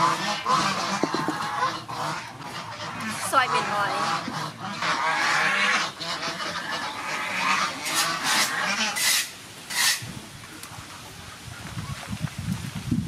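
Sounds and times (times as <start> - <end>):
farmyard birds honking: 0.0 - 10.0.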